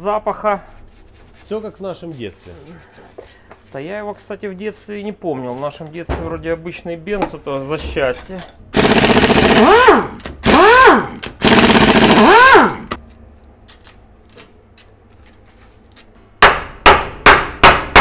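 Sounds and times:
pneumatic impact wrench rattling: 0:08.8 - 0:13.0.

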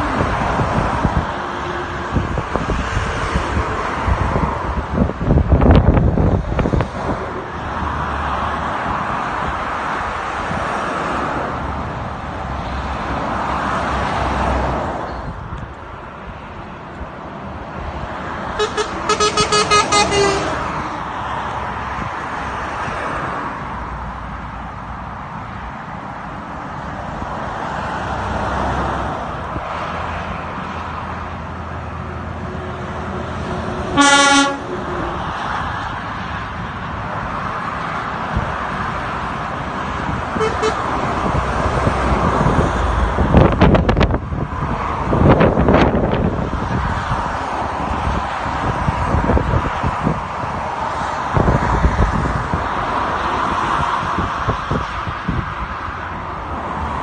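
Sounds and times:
traffic rushing past: 0:00.0 - 0:57.0
vehicle horn toots: 0:18.6 - 0:20.6, 0:34.0 - 0:34.7, 0:40.4 - 0:40.8.

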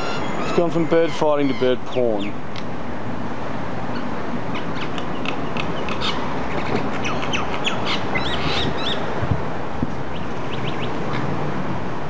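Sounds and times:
birds squawking and chirping: 0:00.0 - 0:02.4, 0:03.9 - 0:09.1, 0:10.1 - 0:11.2.

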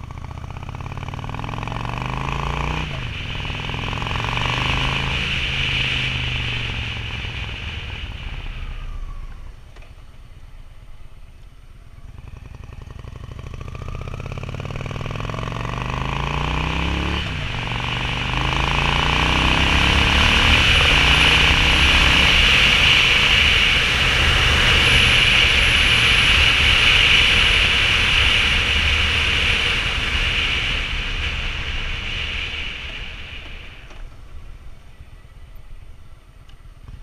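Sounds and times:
motorcycle engine revving: 0:00.0 - 0:10.0, 0:11.8 - 0:35.2.

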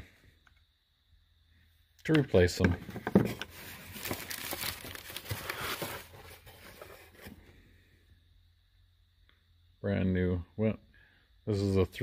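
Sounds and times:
plastic packaging crinkling: 0:03.5 - 0:06.8.

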